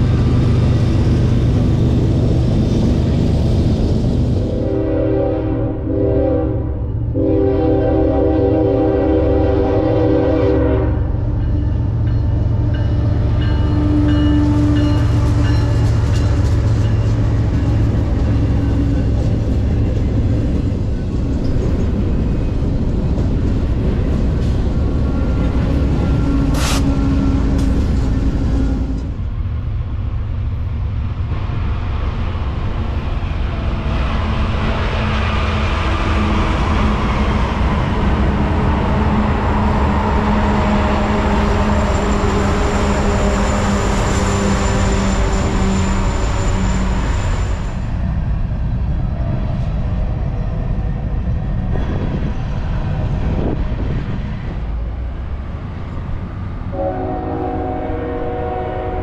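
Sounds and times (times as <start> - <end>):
freight train rumbling past: 0.0 - 59.0
locomotive air horn chord: 4.5 - 11.1, 56.7 - 59.0.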